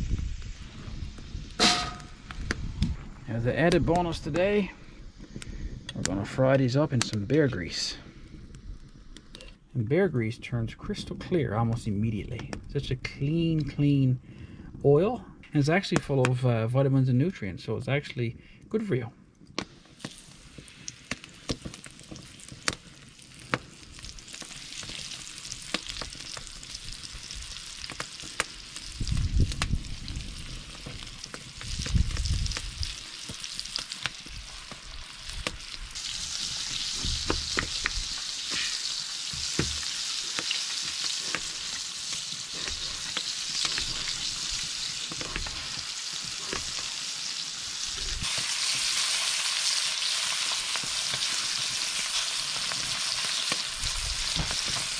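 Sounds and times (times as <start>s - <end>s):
fish sizzling: 0.0s - 2.5s, 19.6s - 54.9s
grease frying and crackling: 0.0s - 17.4s, 18.2s - 54.9s.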